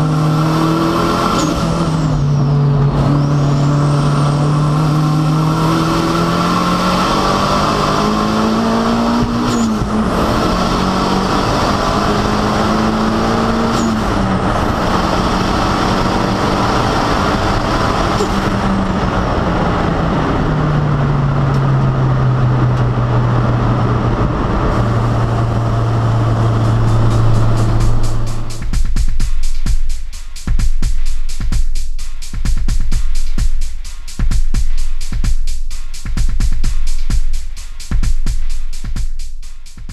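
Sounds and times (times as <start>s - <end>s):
turbocharged race car engine: 0.0s - 29.3s.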